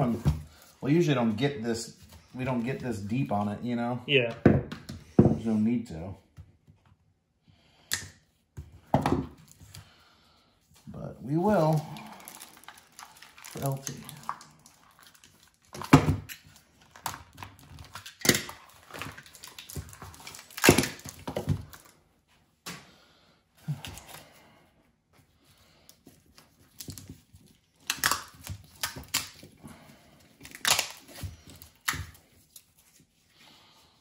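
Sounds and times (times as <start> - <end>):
plastic and tape crinkling and tearing: 0.0 - 3.8, 10.7 - 22.0, 25.7 - 33.4.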